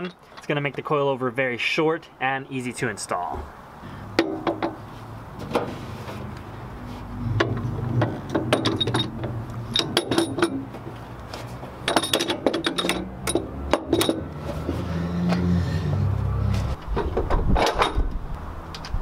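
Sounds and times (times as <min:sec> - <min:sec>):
metal clinking and knocking: 0:07.4 - 0:10.9, 0:11.8 - 0:14.3.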